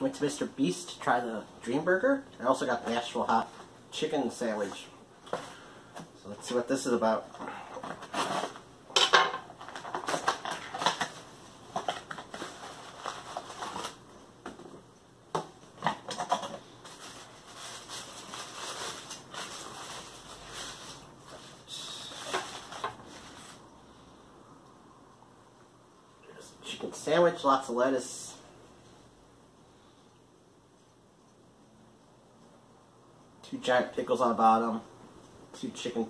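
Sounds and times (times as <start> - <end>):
foil wrapper crinkling: 9.6 - 14.0, 16.2 - 23.6.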